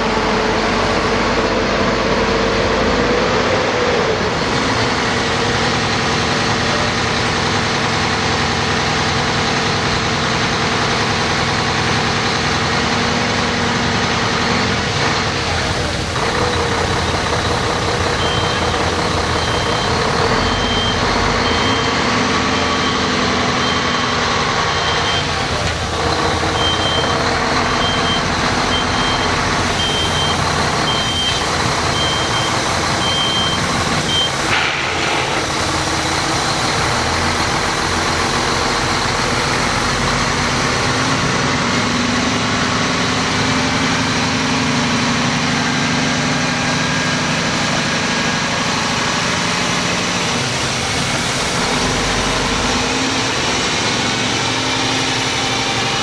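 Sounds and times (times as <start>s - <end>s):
truck diesel engine running: 0.0s - 56.0s
reversing beeper: 18.2s - 25.6s, 26.5s - 34.5s.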